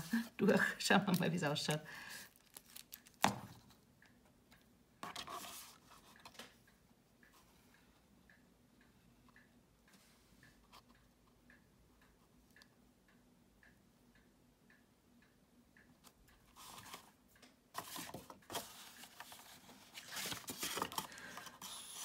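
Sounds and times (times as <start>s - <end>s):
faint ticking: 6.0s - 17.7s
card stock rustling and scraping: 17.8s - 22.0s.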